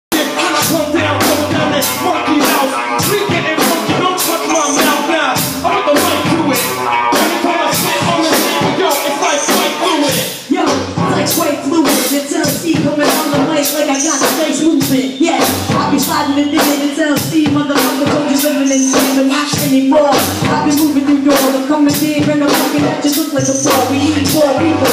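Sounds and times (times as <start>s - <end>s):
drum pattern: 0.1s - 24.9s
hip hop beat: 0.1s - 24.9s
low bass line: 0.6s - 2.4s, 5.4s - 7.0s, 10.8s - 11.6s, 15.5s - 16.2s, 20.4s - 21.0s, 23.4s - 24.9s.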